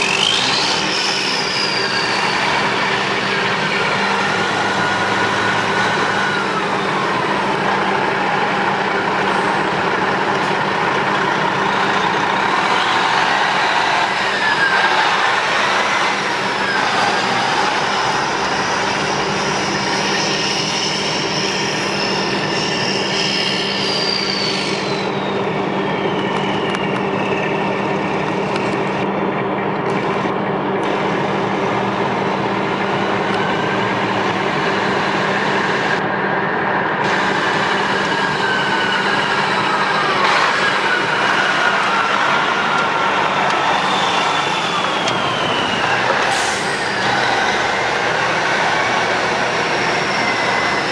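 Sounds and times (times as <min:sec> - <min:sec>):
high whistling tones: 0:00.0 - 0:09.7, 0:10.9 - 0:28.6, 0:37.5 - 0:50.9
diesel engine idling: 0:00.0 - 0:22.4, 0:24.9 - 0:50.9.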